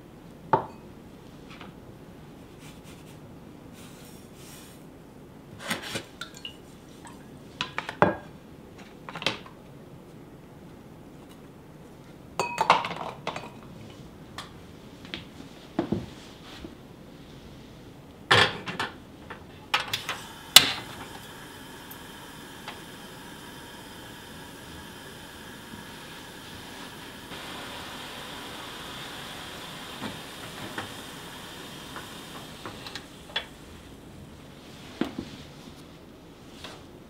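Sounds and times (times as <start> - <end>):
gas burner hissing: 19.7 - 35.4.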